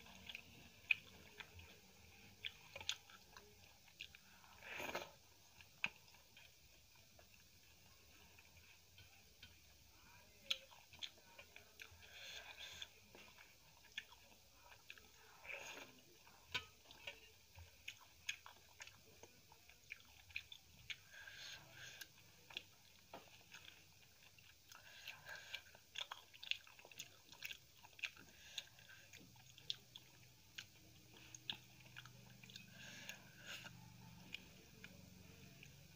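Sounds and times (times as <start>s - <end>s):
soft wet chewing: 0.0s - 35.9s.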